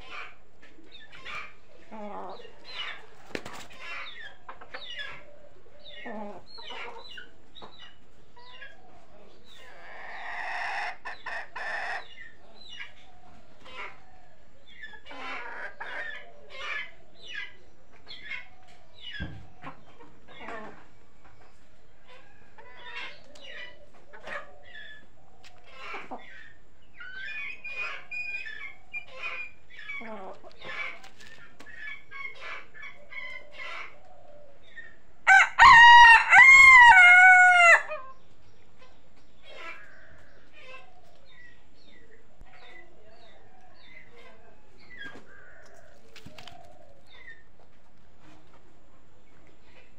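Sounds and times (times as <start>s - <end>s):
chickens clucking: 0.0s - 49.9s
rooster crowing: 35.3s - 38.0s.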